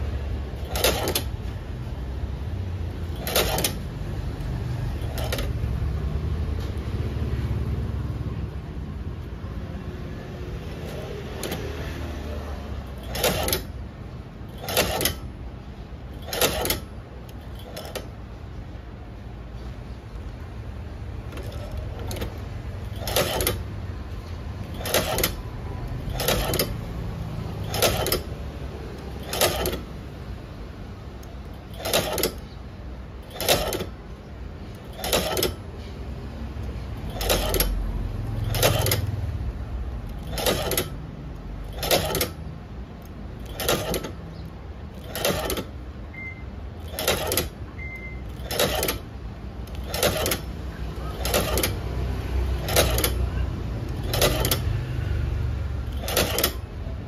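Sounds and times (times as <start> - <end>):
sewing machine stitching clacks: 0.0 - 1.8, 2.9 - 4.0, 4.8 - 5.8, 10.7 - 12.0, 12.8 - 18.2, 21.2 - 30.0, 31.2 - 32.6, 33.2 - 34.0, 34.6 - 36.0, 36.6 - 39.4, 40.1 - 45.8, 46.8 - 57.0.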